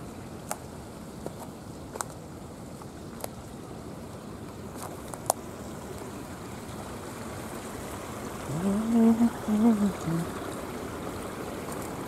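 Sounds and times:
water trickling through rock pools: 0.0s - 12.0s
person calling out: 8.5s - 10.3s.

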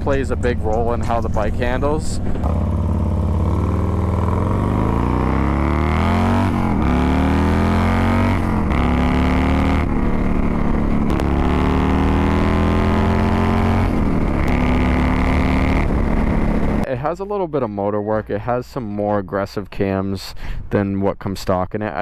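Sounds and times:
motorcycle engine accelerating: 0.0s - 16.9s.

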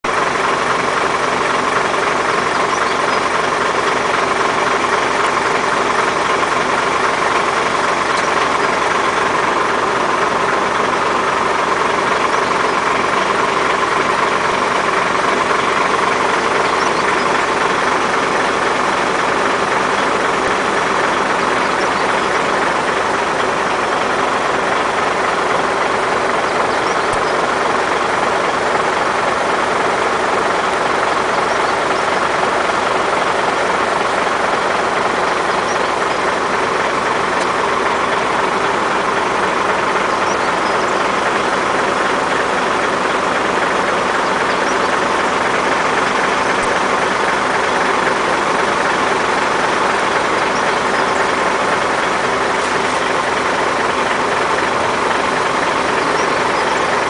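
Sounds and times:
engine humming: 0.0s - 57.0s.

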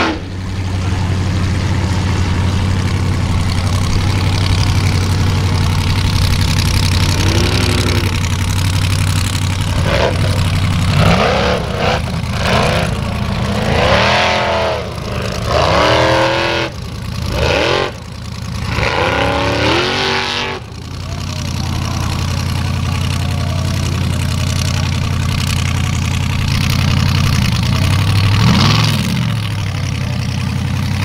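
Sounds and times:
buggy engine revving: 0.0s - 31.0s.

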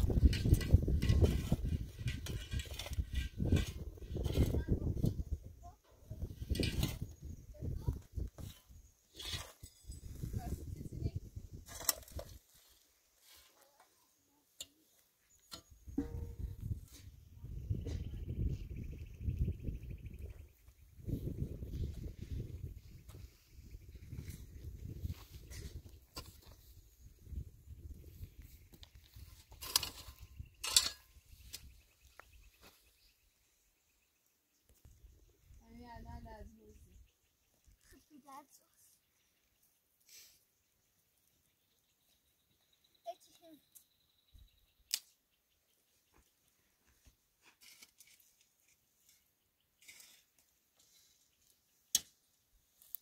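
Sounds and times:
shovel scraping through dry soil: 0.0s - 5.2s, 6.2s - 13.9s, 21.0s - 32.8s, 47.4s - 51.3s.

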